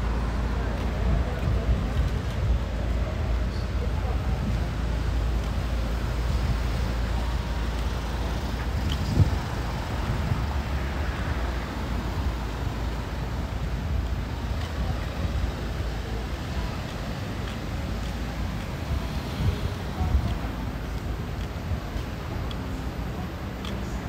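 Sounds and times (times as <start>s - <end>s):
cars driving past: 0.0s - 24.0s.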